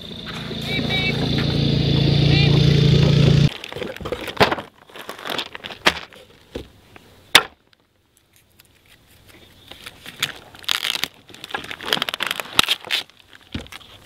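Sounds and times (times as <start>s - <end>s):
plastic packaging crinkling: 3.5s - 5.9s, 9.7s - 14.0s.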